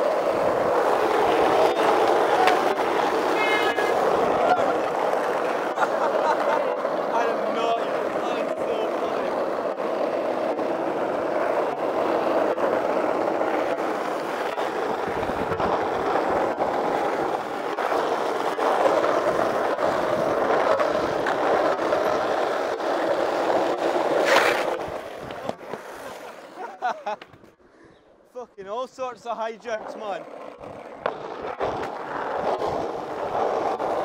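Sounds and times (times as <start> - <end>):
skateboard clack: 0.0 - 27.6, 29.8 - 34.0
skateboard wheels rolling on asphalt: 0.0 - 27.6, 29.1 - 34.0.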